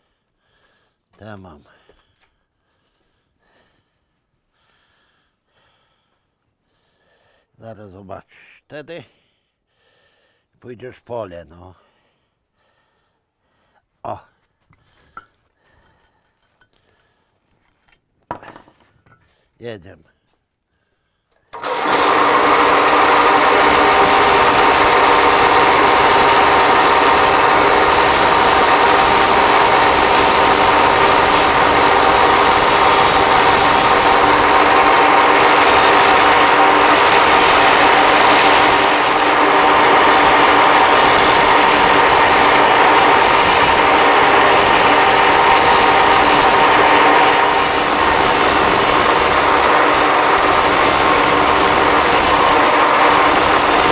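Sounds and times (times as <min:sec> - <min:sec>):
angle grinder grinding steel: 0:21.6 - 0:53.9.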